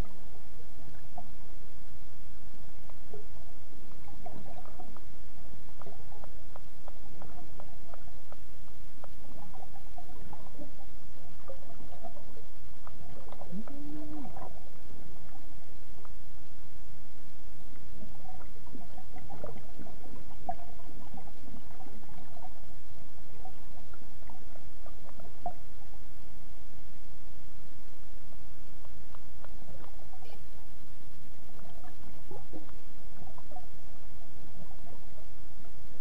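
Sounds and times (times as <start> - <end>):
muffled tone: 0.0 - 36.0
underwater low rumble: 0.0 - 36.0
air bubbles gurgling: 3.9 - 8.4, 9.0 - 16.1, 17.7 - 26.0.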